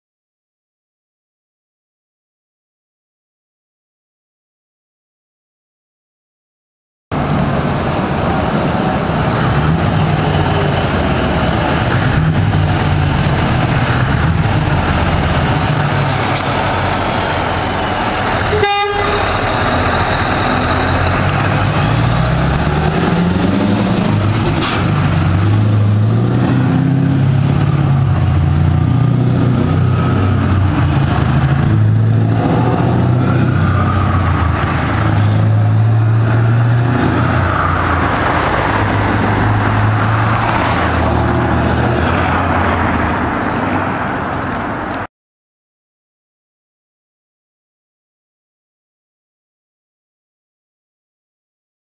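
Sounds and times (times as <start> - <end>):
truck diesel engine revving past: 7.2 - 44.7
truck horn toot: 18.2 - 21.2.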